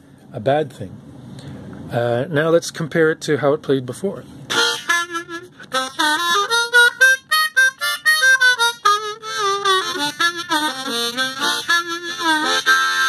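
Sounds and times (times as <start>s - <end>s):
harmonica notes and chords: 4.5s - 13.0s.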